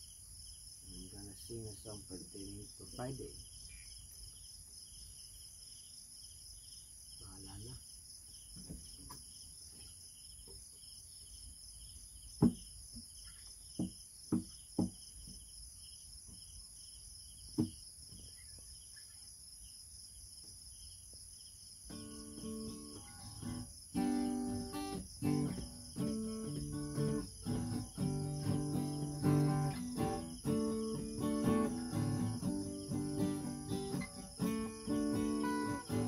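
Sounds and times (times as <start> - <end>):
crickets chirping: 0.0 - 36.0
sharp knocks: 12.4 - 12.7, 13.8 - 15.4, 17.6 - 17.8
acoustic guitar chords: 21.9 - 36.0.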